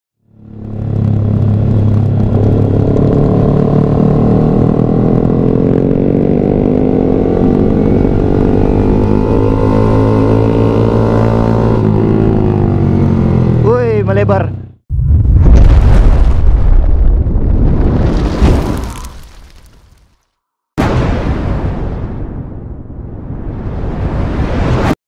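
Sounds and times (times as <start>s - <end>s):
motorcycle engine running: 0.2s - 14.8s.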